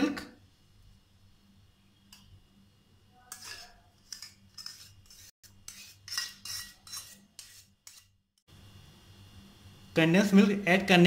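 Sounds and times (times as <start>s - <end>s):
metal spoon scraping a bowl: 3.2s - 8.2s.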